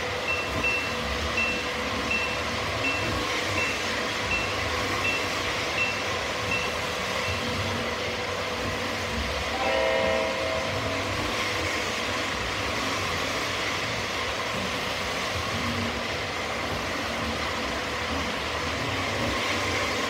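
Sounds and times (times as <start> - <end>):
model train rumbling on track: 0.0 - 20.0
crossing signal bell dinging: 0.2 - 7.7, 9.5 - 11.3
short horn blast: 9.6 - 11.0.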